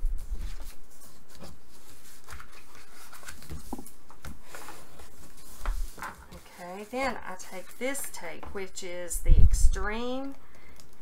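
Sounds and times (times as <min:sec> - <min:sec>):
paper rustling and creasing: 0:00.0 - 0:08.0.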